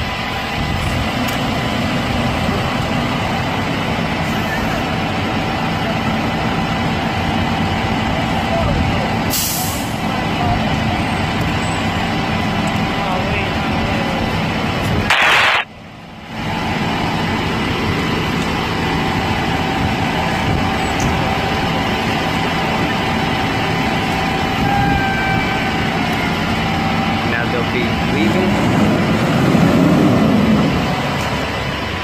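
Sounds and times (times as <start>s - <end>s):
diesel engine running: 0.0s - 32.0s
short loud hiss: 15.1s - 15.6s.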